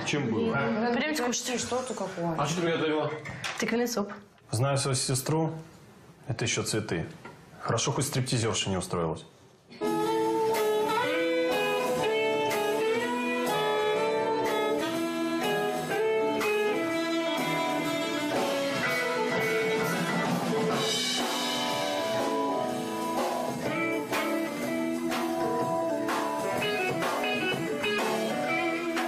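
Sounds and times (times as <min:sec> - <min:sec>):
blues jazz band playing: 0:09.8 - 0:29.0
drum kit: 0:09.8 - 0:29.0
electric guitar: 0:09.8 - 0:29.0.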